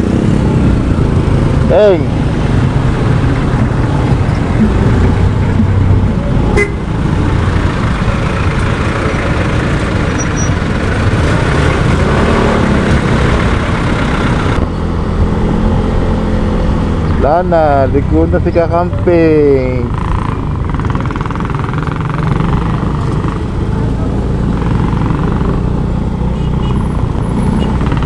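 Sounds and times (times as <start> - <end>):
dense street traffic: 0.0 - 28.0
motorcycle engine: 0.0 - 28.0
vehicle horn toot: 6.5 - 6.8.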